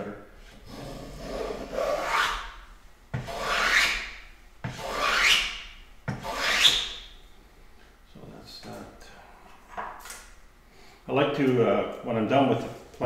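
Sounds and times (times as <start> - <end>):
hand plane shaving wood: 3.2 - 4.1, 4.7 - 5.5, 6.1 - 6.9.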